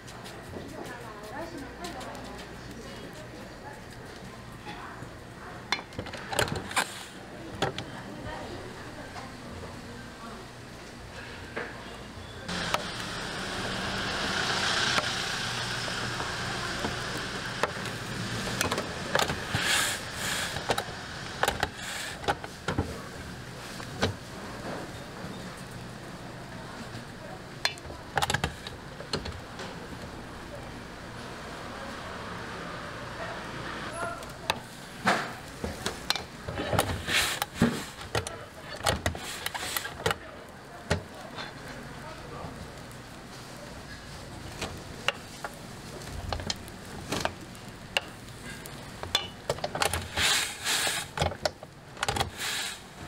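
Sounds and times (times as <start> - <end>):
steady hiss: 50.1 - 51.2, 52.3 - 53.0.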